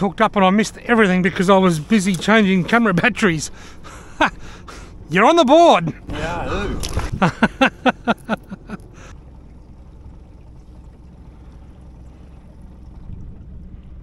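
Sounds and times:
outboard motor running: 0.0 - 14.0
water along boat hull: 0.0 - 14.0.

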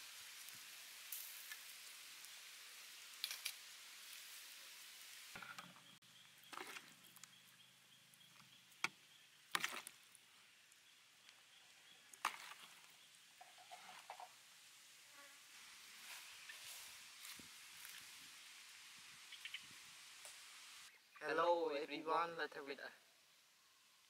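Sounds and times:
meat sizzling on a grill: 0.0 - 6.0, 13.1 - 20.9.

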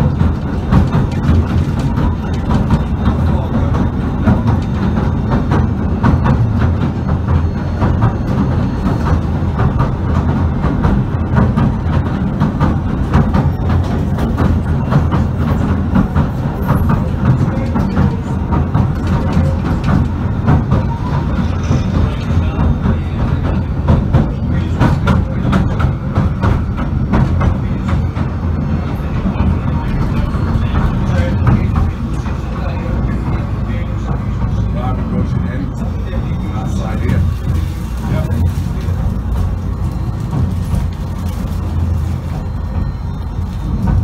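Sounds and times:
train rumbling on track: 0.0 - 44.0
wheels clicking and carriage rattling: 0.0 - 44.0.

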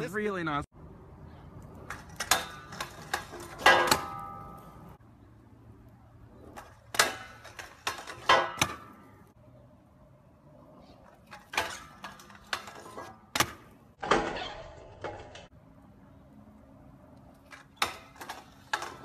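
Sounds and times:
scooter grinding on metal rail: 1.8 - 5.0, 6.5 - 9.3, 11.0 - 15.5, 17.5 - 19.0.

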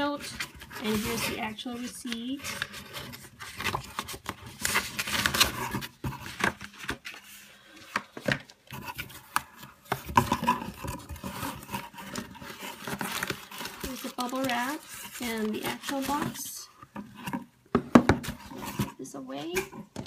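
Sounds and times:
paper and cardboard rustling: 0.0 - 20.0.

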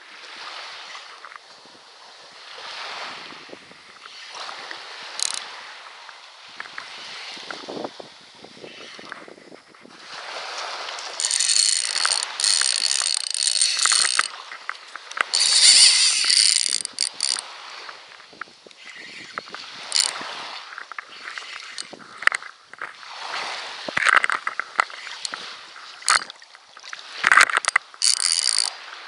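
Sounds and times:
reel clicks: 4.0 - 5.7, 10.2 - 29.0
fishing reel drag buzzing: 4.6 - 5.6, 10.3 - 18.0, 18.6 - 22.3, 24.8 - 26.3, 27.0 - 29.0.

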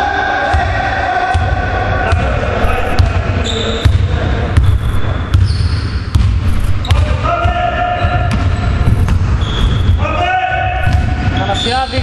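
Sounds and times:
sneaker squeaks: 2.6 - 7.2, 7.9 - 10.1, 10.8 - 12.0
basketball bouncing on wooden floor: 10.8 - 11.3.

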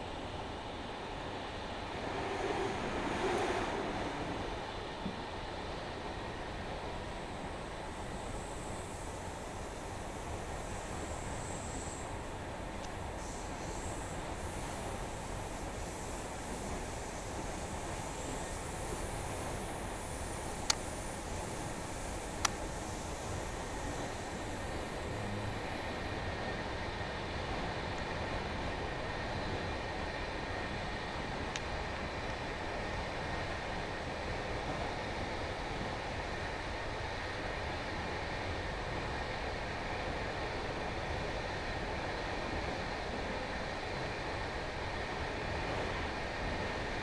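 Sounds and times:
faint high whine: 0.0 - 31.5
train wheels rumbling on track: 0.0 - 47.0.

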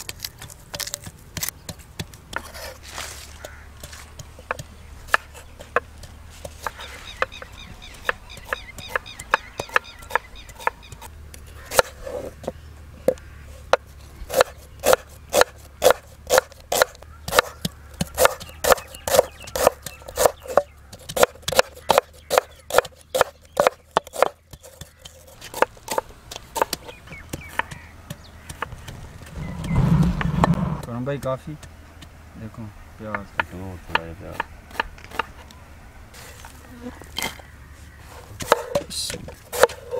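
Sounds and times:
pestle pounding in clay mortar: 3.3 - 11.1, 13.7 - 32.1.

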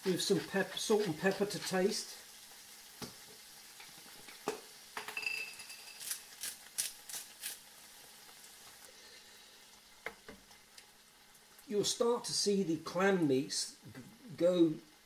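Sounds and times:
food sizzling in a frying pan: 0.0 - 15.0
kitchen items clinking: 4.3 - 6.3.

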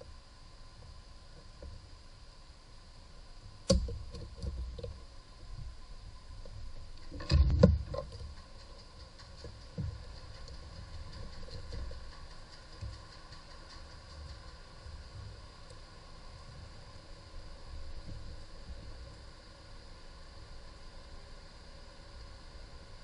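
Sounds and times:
small clicks and rustles: 3.7 - 5.0, 6.4 - 19.4.

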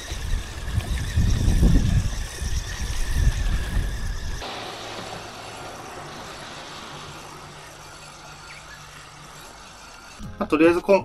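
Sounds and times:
wind rumbling on microphone: 0.0 - 4.5
fishing reel cranking with whine: 0.0 - 10.2.

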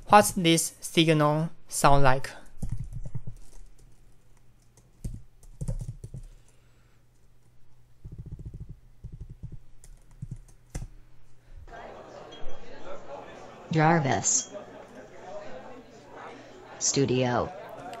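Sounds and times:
typing on a keyboard: 2.6 - 4.0, 4.6 - 6.6, 8.0 - 10.9.

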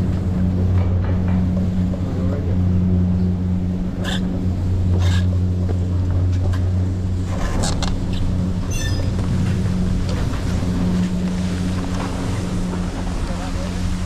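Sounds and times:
high squeak: 8.6 - 9.2.

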